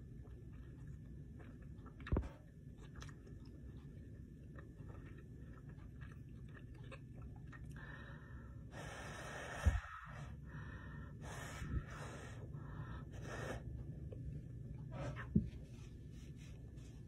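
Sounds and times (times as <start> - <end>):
heavy breathing close to microphone: 7.8 - 13.8.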